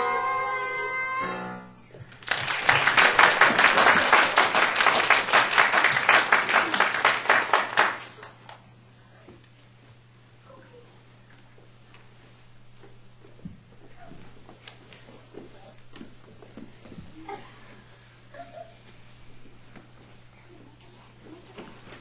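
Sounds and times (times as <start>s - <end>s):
children's song with keyboard: 0.0s - 1.8s
audience applause: 2.1s - 8.4s.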